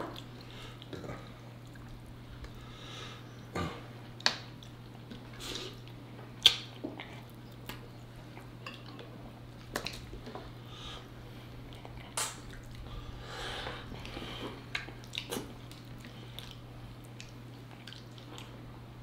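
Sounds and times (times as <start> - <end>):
wet chewing and smacking: 4.0 - 10.6, 11.6 - 12.9, 13.8 - 18.6.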